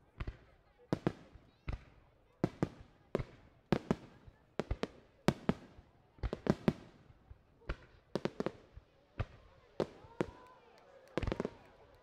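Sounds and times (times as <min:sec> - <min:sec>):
fireworks bangs: 0:00.2 - 0:12.0.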